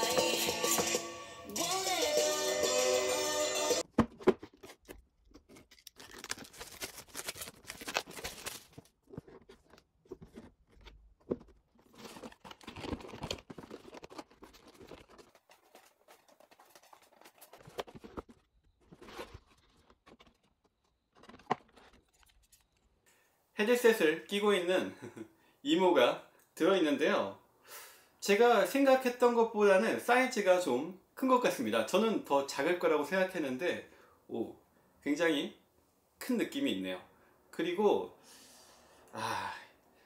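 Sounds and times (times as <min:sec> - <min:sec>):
box being handled: 0:03.8 - 0:22.4
plastic wrap tearing and crinkling: 0:04.5 - 0:09.8, 0:11.8 - 0:22.5.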